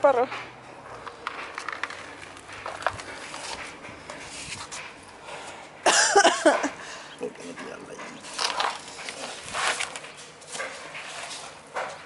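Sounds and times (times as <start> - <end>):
plastic pot scraping on tiles: 8.2 - 11.6.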